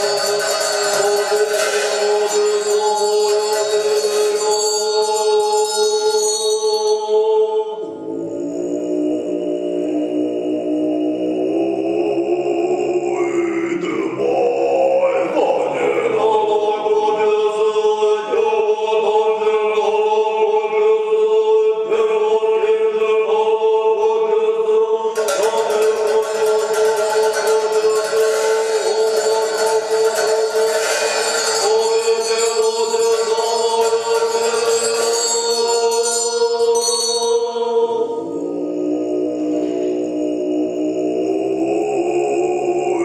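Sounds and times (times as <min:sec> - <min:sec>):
monks chanting: 0:00.0 - 0:05.7, 0:07.0 - 0:43.0
bright shimmering music: 0:00.0 - 0:12.0, 0:25.2 - 0:43.0.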